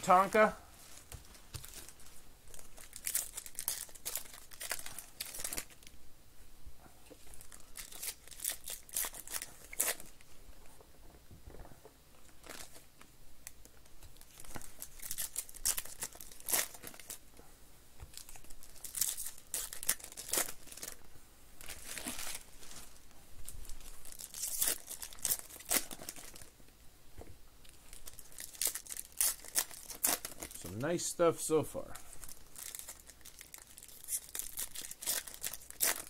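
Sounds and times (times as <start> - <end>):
foil wrappers tearing and crinkling: 1.6 - 5.8, 7.4 - 10.2, 14.2 - 17.2, 18.1 - 21.0, 21.6 - 22.9, 23.7 - 26.5, 27.9 - 30.7, 32.2 - 36.0.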